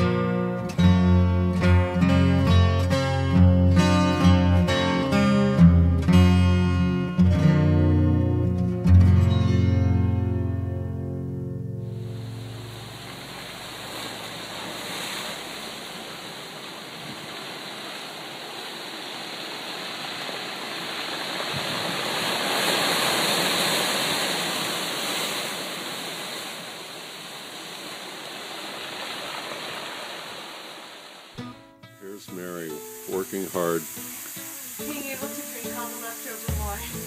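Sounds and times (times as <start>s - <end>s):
surf washing over rocks: 11.9s - 31.4s, 32.1s - 37.0s.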